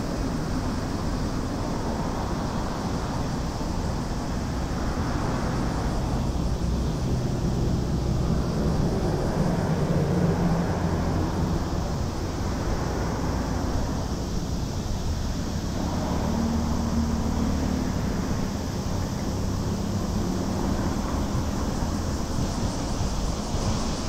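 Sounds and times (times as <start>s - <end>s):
passing cars rumbling: 0.0s - 24.0s.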